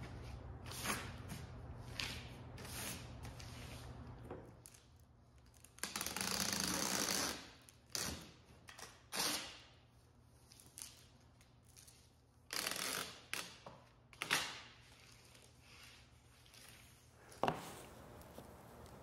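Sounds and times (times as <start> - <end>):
tape tearing: 4.6 - 9.7, 10.5 - 15.6
packing tape screeching off dispenser: 5.5 - 9.7, 11.8 - 15.5.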